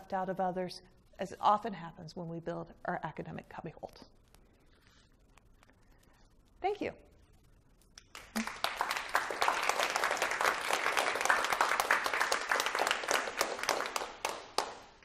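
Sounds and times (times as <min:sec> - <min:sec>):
audience applauding: 0:08.0 - 0:15.0.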